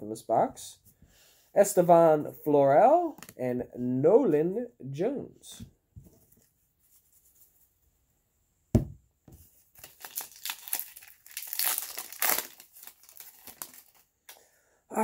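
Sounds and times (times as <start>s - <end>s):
thump: 8.7s - 9.4s
foil wrapper tearing and crinkling: 9.7s - 14.1s.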